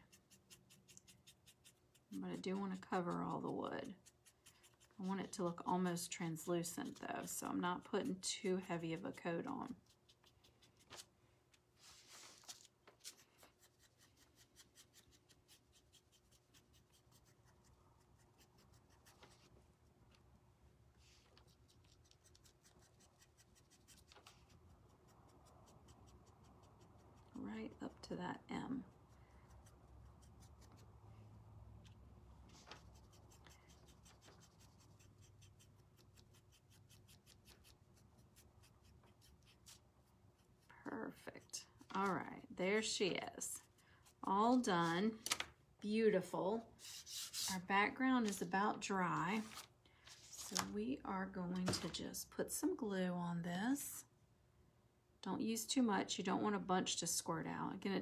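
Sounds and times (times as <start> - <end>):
paintbrush scratching on wood: 0.0 - 10.9, 32.5 - 39.8, 46.8 - 47.7
low steady hum: 23.6 - 58.0.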